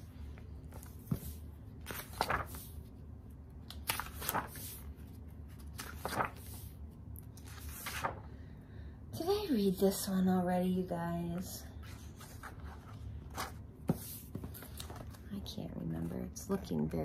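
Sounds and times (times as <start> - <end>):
low room hum: 0.0 - 17.0
book pages turning: 0.2 - 2.9, 3.6 - 8.3, 11.8 - 15.3.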